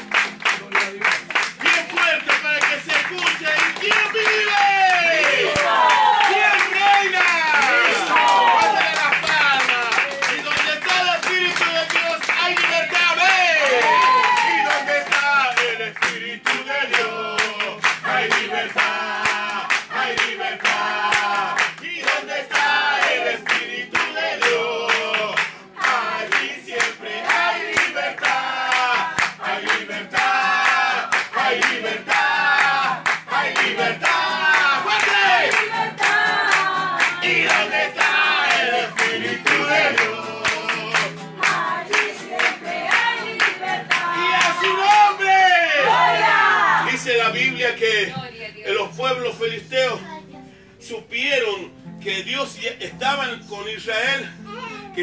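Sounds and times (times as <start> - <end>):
people clapping along: 0.0 - 48.3
guitar accompaniment: 0.0 - 55.0
congregation singing: 3.4 - 11.8, 12.9 - 48.3.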